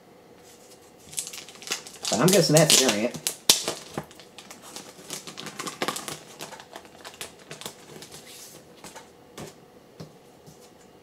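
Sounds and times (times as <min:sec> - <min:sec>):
plastic bag crinkling: 0:01.0 - 0:09.1.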